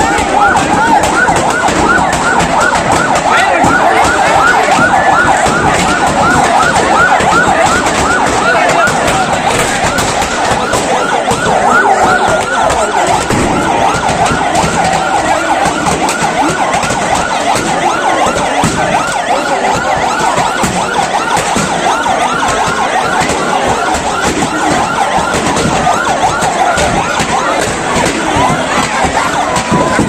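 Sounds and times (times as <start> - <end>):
fire crackling and popping: 0.0 - 19.2
siren yelping: 0.0 - 30.0.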